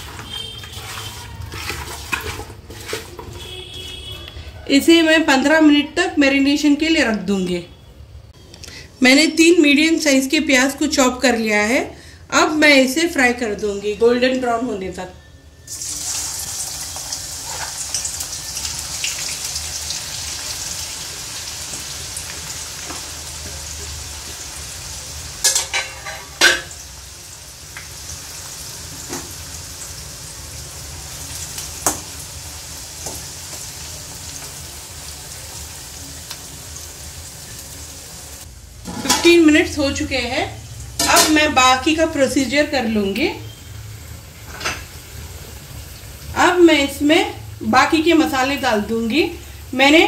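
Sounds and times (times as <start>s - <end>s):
onions sizzling in hot oil: 0.0s - 3.2s, 15.7s - 50.0s.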